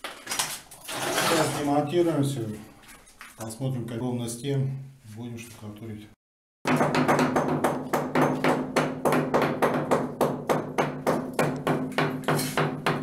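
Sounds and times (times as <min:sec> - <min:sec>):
hammer chipping paint off wall: 0:06.7 - 0:13.0.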